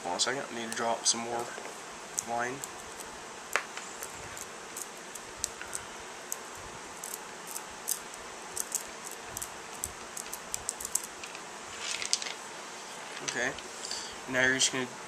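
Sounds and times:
magnet spheres clicking: 0:02.2 - 0:03.1, 0:04.0 - 0:12.4.

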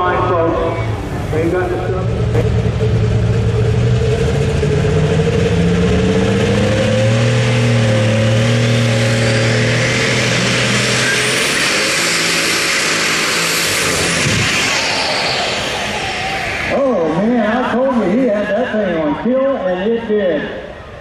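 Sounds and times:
diesel tractor engine running hard: 0:00.0 - 0:21.0
turbocharger whistle: 0:06.4 - 0:17.3.

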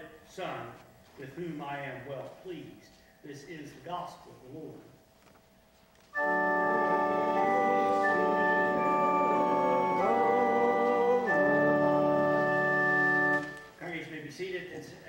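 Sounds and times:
church organ chords: 0:06.1 - 0:13.8.

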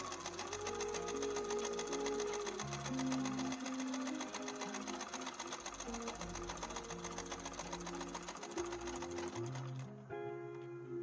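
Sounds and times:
sewing machine stitching: 0:00.0 - 0:09.9
background music sustained notes: 0:00.0 - 0:11.0.

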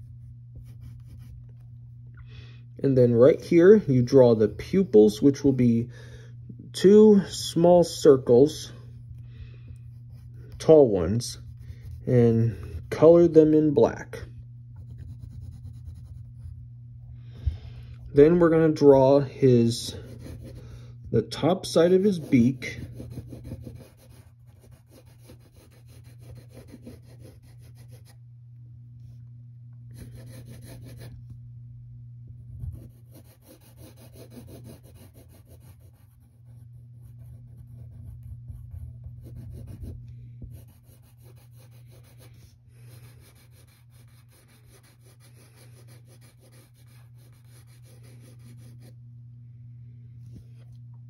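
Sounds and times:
pencil scratching on paper: 0:00.0 - 0:01.6, 0:09.8 - 0:13.6, 0:14.8 - 0:16.6, 0:19.8 - 0:20.7, 0:21.4 - 0:28.2, 0:29.9 - 0:31.1, 0:32.6 - 0:49.0
steady low hum: 0:00.0 - 0:51.0.

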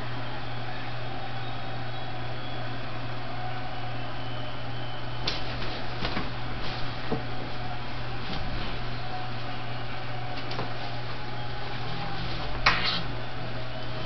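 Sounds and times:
crowd noise from a television: 0:00.0 - 0:14.0
constant low hum: 0:04.5 - 0:14.0.

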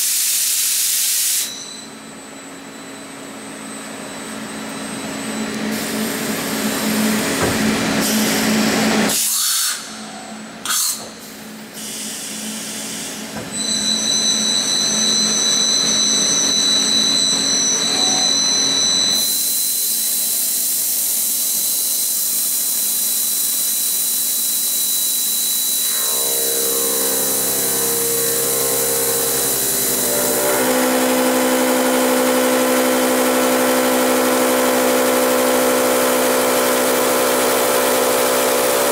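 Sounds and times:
high steady whines: 0:09.8 - 0:38.9
machine hum: 0:24.8 - 0:38.9
steady motor tones: 0:24.8 - 0:38.9.

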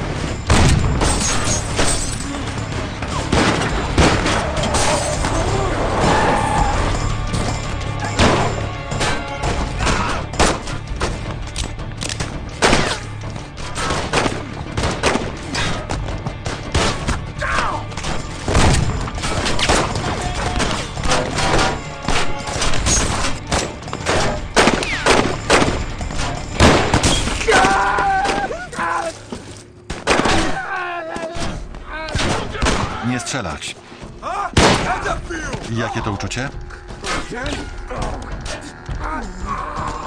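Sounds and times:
film music score: 0:00.0 - 0:40.0
gunshots: 0:03.0 - 0:05.2, 0:18.4 - 0:26.0, 0:26.6 - 0:27.5, 0:34.6 - 0:35.1.

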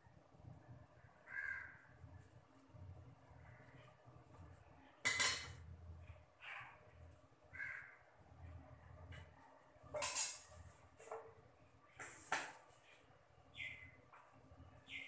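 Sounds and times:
crows cawing: 0:01.2 - 0:01.9, 0:07.5 - 0:08.1.

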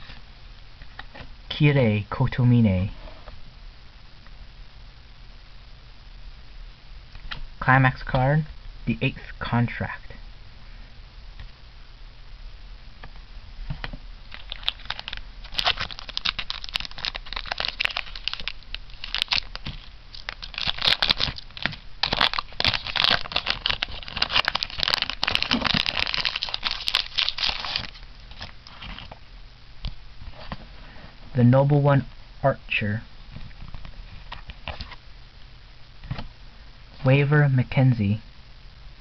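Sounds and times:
foil wrapper crinkling and tearing: 0:14.3 - 0:29.1.

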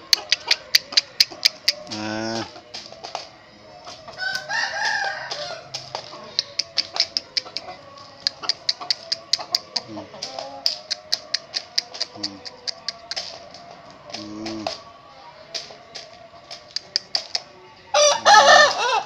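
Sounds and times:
sharp clicks: 0:00.0 - 0:02.0, 0:05.7 - 0:07.6, 0:08.2 - 0:14.8, 0:15.6 - 0:17.4
young rooster crowing: 0:04.2 - 0:05.8, 0:17.9 - 0:19.0.

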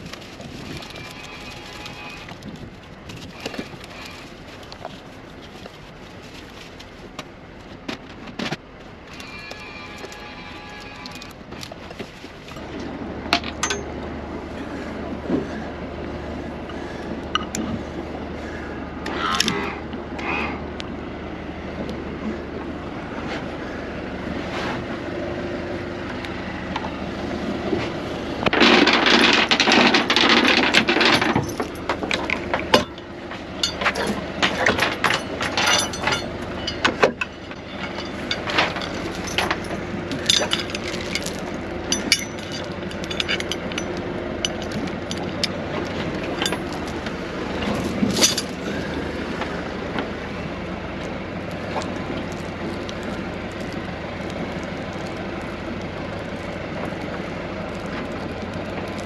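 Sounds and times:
gear knocking and clicking: 0:00.0 - 0:12.7, 0:28.4 - 0:50.1, 0:51.0 - 0:59.0
boat engine running: 0:09.5 - 0:59.0.

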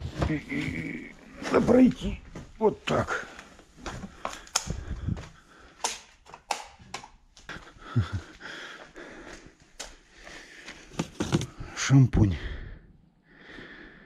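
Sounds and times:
clicks and knocks of handled objects: 0:03.8 - 0:04.8.

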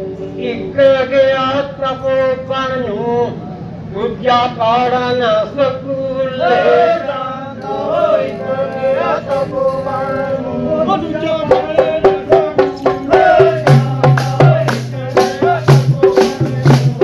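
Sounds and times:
sharp rhythmic percussion: 0:11.3 - 0:17.0
low hand drum beat: 0:11.5 - 0:17.0.

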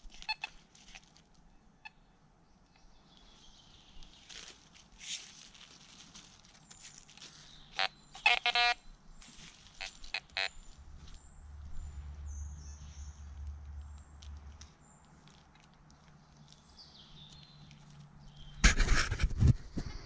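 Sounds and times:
metal detector beep: 0:07.7 - 0:08.8.

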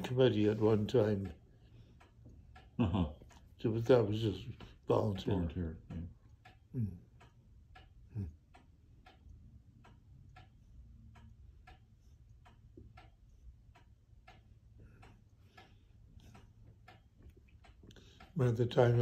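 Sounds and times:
clock ticking: 0:00.0 - 0:19.0
low room hum: 0:00.0 - 0:19.0
person murmuring: 0:02.8 - 0:03.2, 0:06.7 - 0:07.2, 0:08.1 - 0:08.5.

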